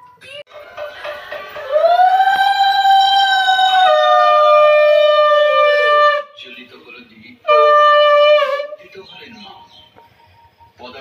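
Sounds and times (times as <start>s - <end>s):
conch shell blasts: 7.4s - 8.8s.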